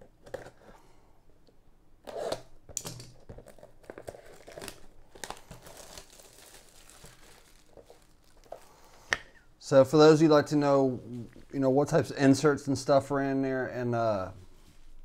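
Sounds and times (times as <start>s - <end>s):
plastic wrap crinkling: 3.2s - 9.4s, 11.0s - 12.2s.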